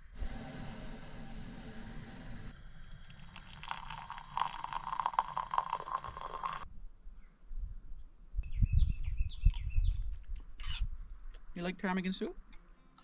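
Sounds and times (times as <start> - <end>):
gas stove burner hissing: 0.0 - 3.1
tea pouring into a mug: 2.5 - 6.7.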